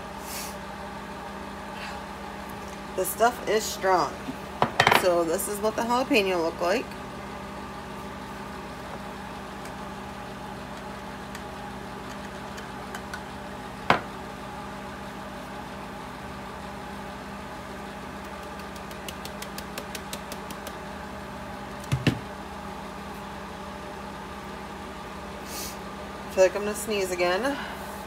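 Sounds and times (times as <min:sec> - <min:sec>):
fan humming: 0:00.0 - 0:28.0
grinder set down on counter: 0:04.6 - 0:05.0.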